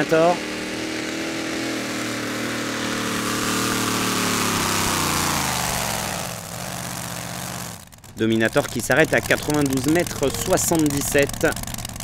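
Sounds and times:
supercharged truck engine straining: 0.0 - 12.0.

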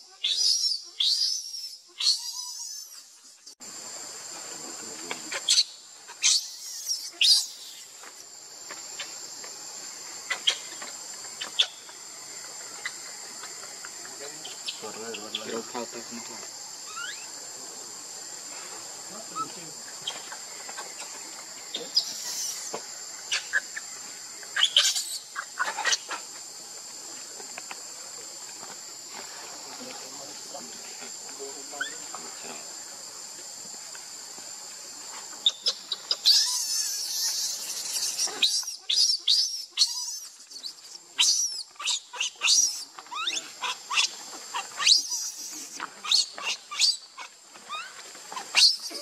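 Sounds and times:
insects droning: 0.0 - 49.0
baby monkey squealing: 0.2 - 3.0, 5.5 - 7.8, 16.9 - 17.3, 24.6 - 26.2, 35.4 - 40.4, 41.2 - 47.9.

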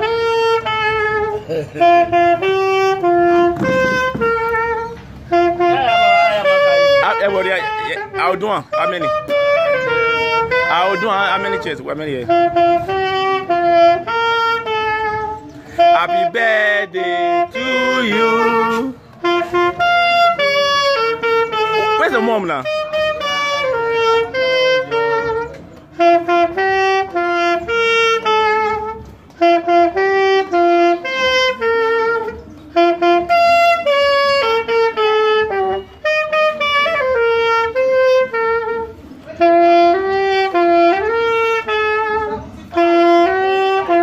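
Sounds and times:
solo saxophone melody: 0.0 - 44.0.

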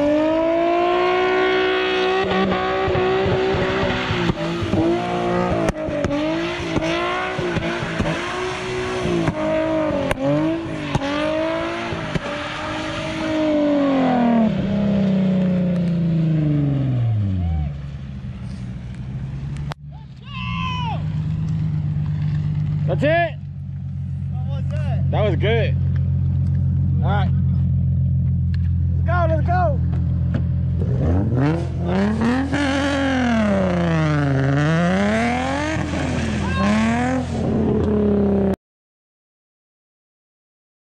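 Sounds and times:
car engine revving: 0.0 - 20.2, 20.9 - 38.6.

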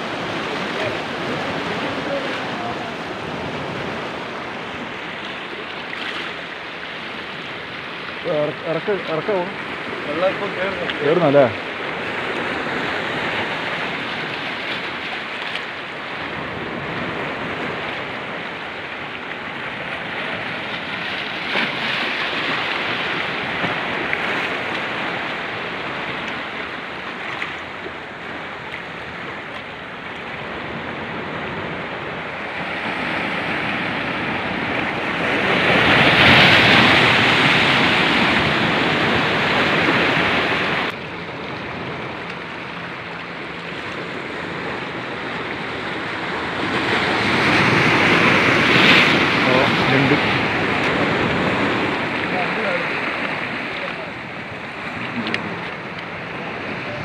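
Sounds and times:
sea waves breaking on rocks: 0.0 - 57.0.

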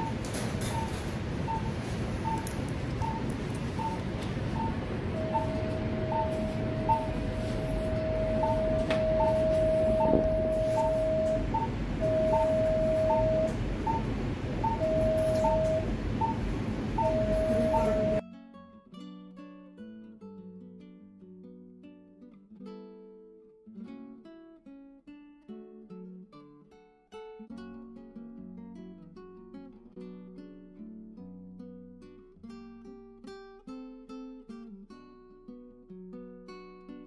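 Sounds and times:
cautery unit activation tone: 0.0 - 18.2
patient monitor beeping: 0.0 - 18.2
steady theatre hum: 0.0 - 18.2.

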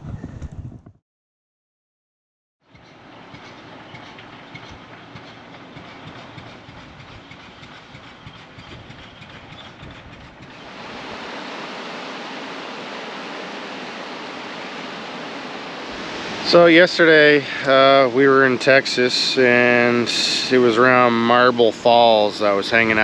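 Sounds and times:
steady rushing noise: 6.3 - 23.0.

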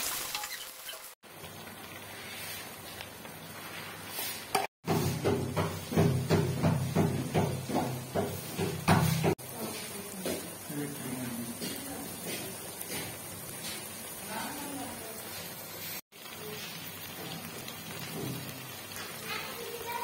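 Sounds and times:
food sizzling in oil: 0.0 - 20.0
wooden spatula scraping pot: 1.8 - 10.6.

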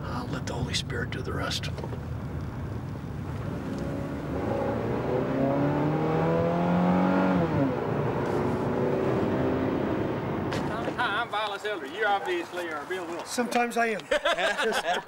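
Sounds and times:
road noise: 0.0 - 15.0
car engine accelerating: 2.7 - 11.0.

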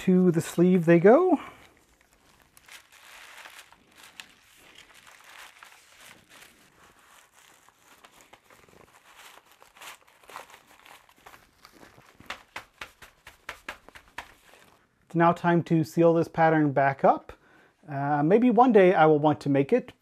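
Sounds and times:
paper rustling and crinkling: 0.0 - 14.8.

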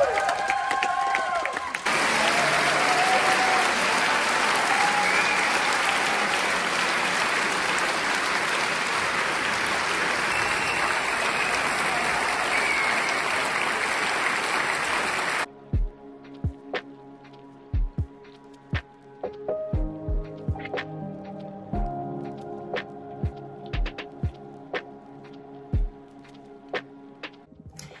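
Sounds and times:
audience applauding: 0.0 - 15.5.

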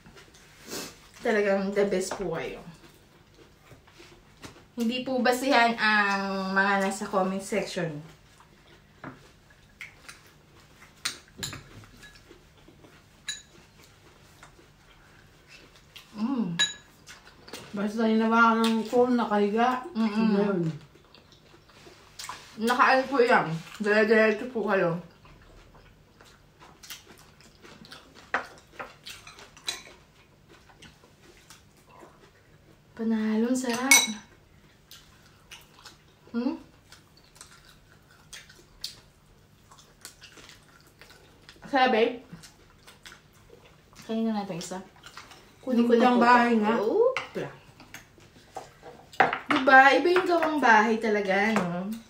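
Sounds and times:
chewing smacks: 8.2 - 13.0, 20.8 - 22.8, 25.1 - 32.8, 34.6 - 41.6, 42.3 - 44.1, 44.9 - 45.6
spoon clinking ceramic bowl: 33.8 - 34.2.

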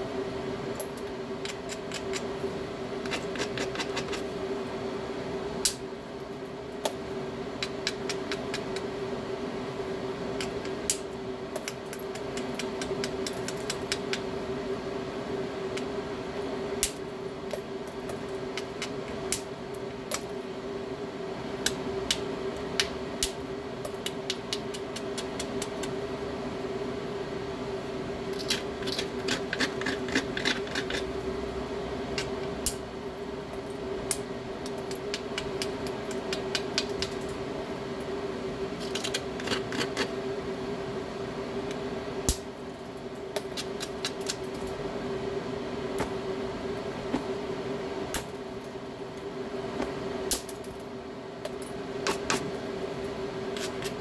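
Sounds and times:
steady hum: 0.0 - 54.0.

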